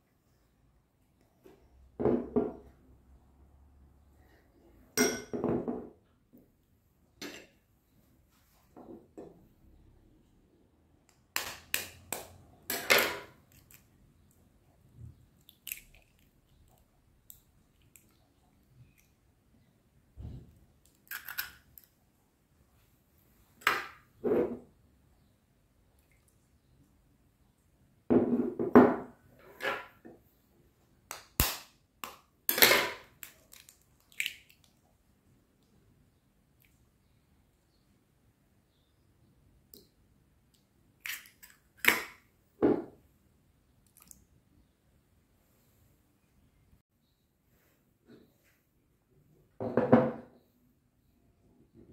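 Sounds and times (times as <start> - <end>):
eggshell crackling: 15.4 - 18.2, 33.1 - 34.7
egg cracking on bowl edge: 20.8 - 21.9, 33.1 - 34.6.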